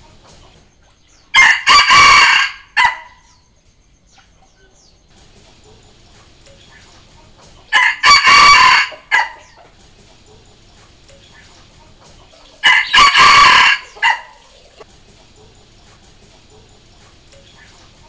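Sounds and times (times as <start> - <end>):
rooster crowing: 1.3 - 3.4, 7.7 - 9.7, 12.6 - 14.6.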